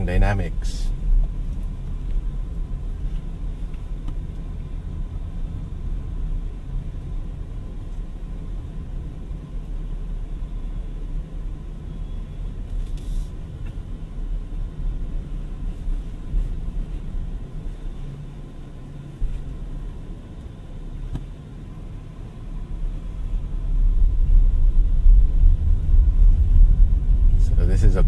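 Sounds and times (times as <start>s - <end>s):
tyre and road rumble: 12.4s - 28.0s.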